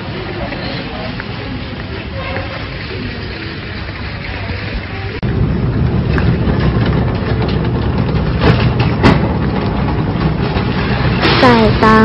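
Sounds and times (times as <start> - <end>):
shopping trolley wheels rumbling: 0.0 - 12.0
trolley knocks: 5.4 - 12.0.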